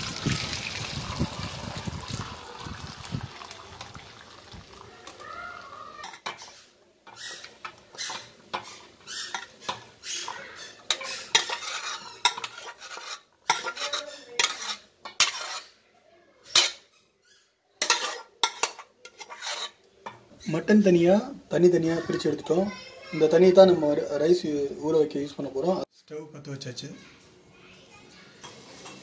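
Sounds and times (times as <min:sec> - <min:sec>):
metal ladle scraping a pot: 0:06.0 - 0:15.8, 0:16.4 - 0:17.0, 0:17.8 - 0:20.7.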